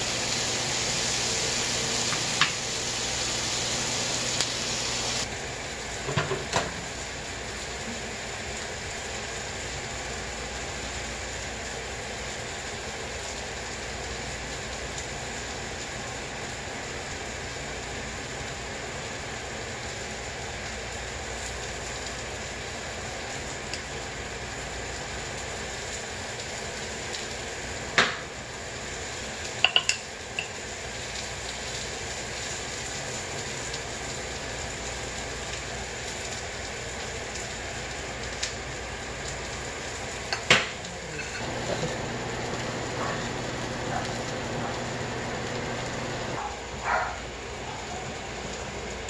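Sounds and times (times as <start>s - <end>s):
food hissing on stove: 0.0s - 6.1s, 6.7s - 49.0s
utensils clinking on ceramic bowls: 41.2s - 41.9s.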